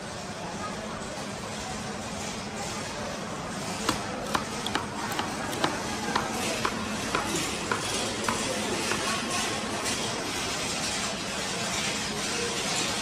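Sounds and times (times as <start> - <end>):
knife chopping on wooden board: 3.8 - 9.2.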